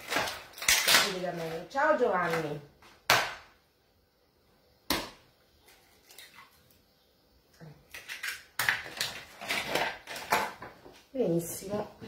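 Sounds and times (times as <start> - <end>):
egg shell cracking: 7.9 - 10.5.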